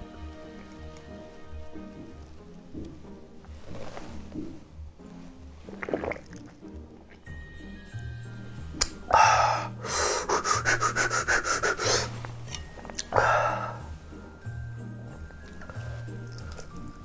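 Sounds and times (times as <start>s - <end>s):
music with low beat: 0.0s - 5.1s
man panting: 9.2s - 12.2s.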